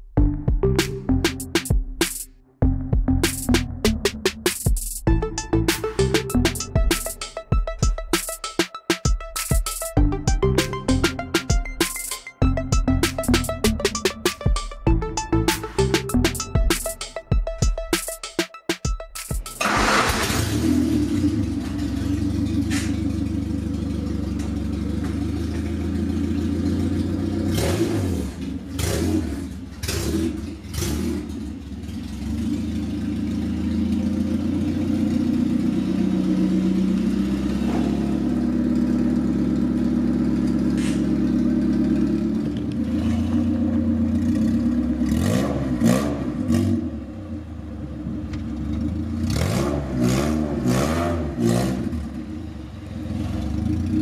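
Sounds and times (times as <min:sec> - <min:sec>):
car engine running: 0:09.4 - 0:18.2, 0:18.9 - 0:54.0.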